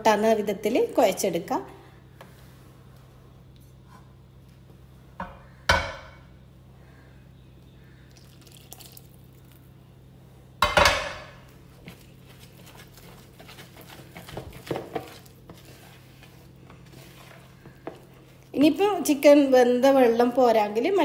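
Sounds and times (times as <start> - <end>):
liquid splashing into bowl: 8.1 - 9.6.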